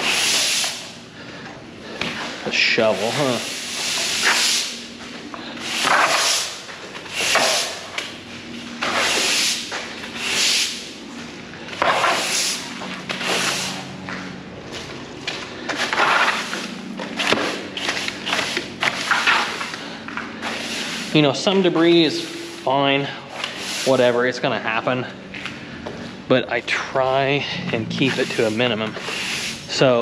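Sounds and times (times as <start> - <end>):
push broom sweeping wet concrete: 0.0 - 1.0, 2.0 - 11.0, 11.7 - 14.0, 15.6 - 25.0, 28.0 - 30.0.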